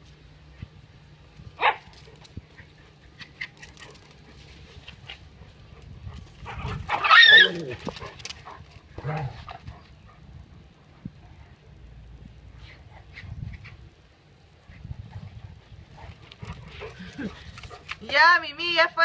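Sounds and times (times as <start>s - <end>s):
dogs barking and yelping: 1.6s - 10.3s.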